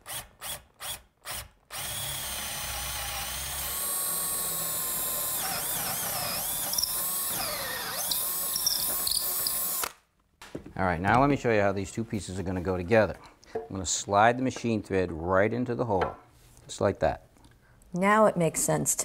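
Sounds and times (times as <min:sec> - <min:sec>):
cordless drill boring into wood: 0:00.0 - 0:10.0.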